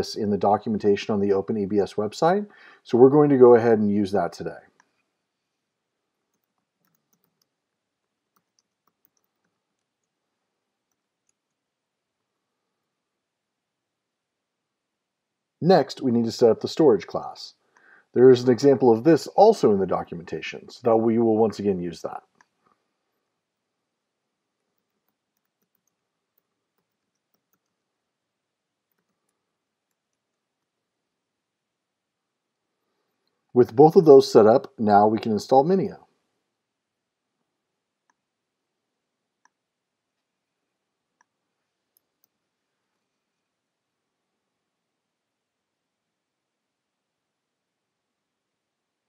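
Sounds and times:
faint keyboard typing: 6.1s - 12.4s, 24.5s - 28.0s, 28.8s - 30.8s, 41.0s - 43.1s.

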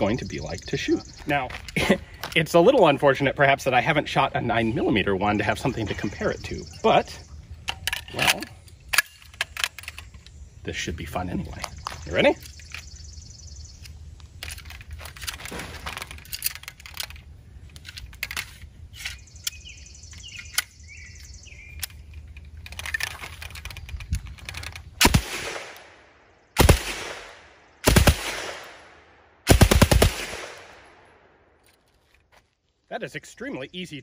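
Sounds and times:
submachine gun automatic fire: 26.6s - 28.7s, 29.5s - 30.6s.

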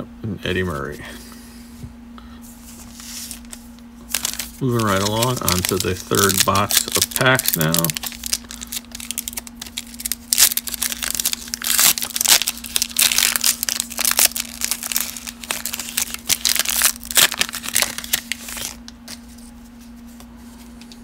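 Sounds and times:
foil wrapper tearing and crinkling: 3.0s - 19.3s.

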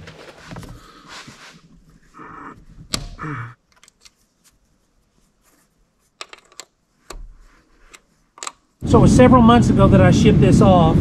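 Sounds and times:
clicks and knocks: 2.8s - 4.2s, 6.2s - 8.6s.

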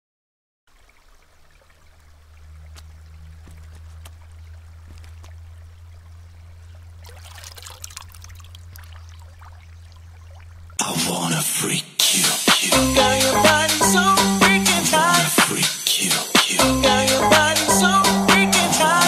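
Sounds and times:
low steady hum: 0.8s - 10.9s.

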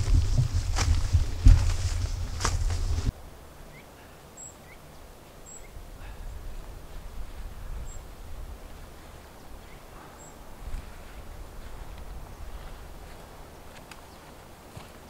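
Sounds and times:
footsteps on dry leaves: 0.0s - 3.1s, 8.6s - 15.0s
handling noise: 0.0s - 3.1s
low wind rumble: 0.0s - 4.1s, 4.8s - 14.7s.

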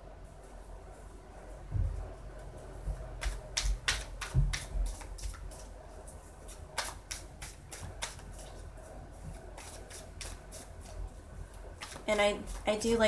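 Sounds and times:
cards being shuffled: 3.2s - 5.7s, 6.4s - 8.6s, 9.3s - 11.1s, 11.7s - 12.7s.

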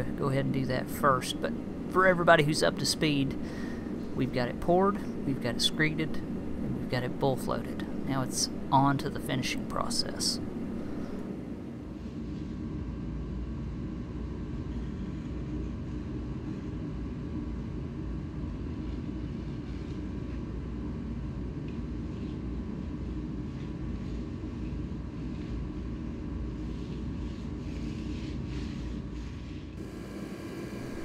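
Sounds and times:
low machine rumble: 0.0s - 31.0s.

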